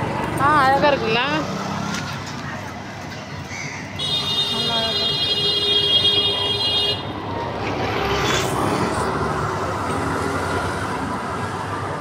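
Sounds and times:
street traffic: 0:00.0 - 0:12.0
vehicle horn: 0:04.0 - 0:07.1.

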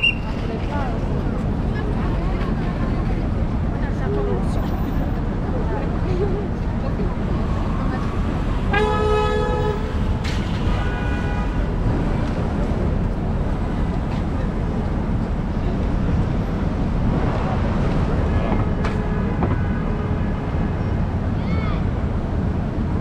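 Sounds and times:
crowd noise: 0:00.0 - 0:23.0
steady traffic: 0:00.0 - 0:23.0.

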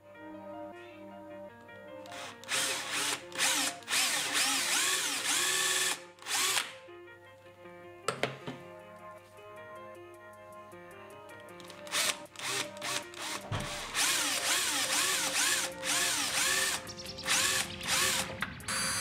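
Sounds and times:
background music: 0:00.0 - 0:19.0
drill boring into wood: 0:02.1 - 0:06.7, 0:11.9 - 0:19.0.

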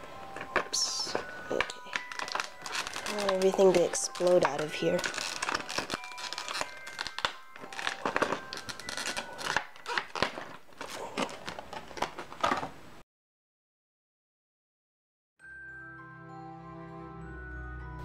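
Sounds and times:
plastic packaging crinkling: 0:00.0 - 0:12.8.

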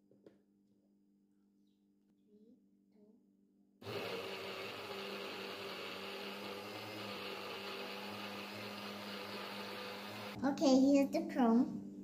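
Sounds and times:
biscuits grinding: 0:03.8 - 0:10.4
blender motor humming: 0:03.8 - 0:10.4.

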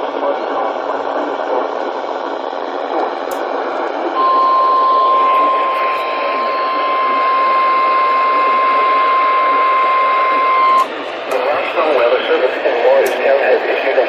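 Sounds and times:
radio static hiss: 0:00.0 - 0:14.0
steady alarm tone: 0:04.2 - 0:11.0.

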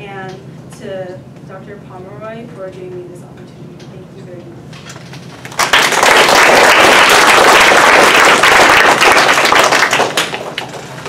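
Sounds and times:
audience applauding: 0:05.4 - 0:10.8.

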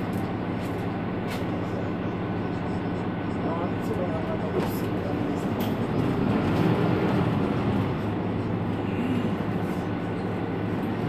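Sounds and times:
bus engine idling: 0:00.0 - 0:11.0.

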